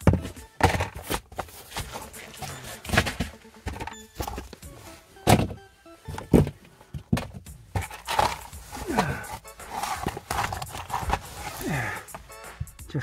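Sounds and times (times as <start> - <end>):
faint background music: 0.0 - 13.0.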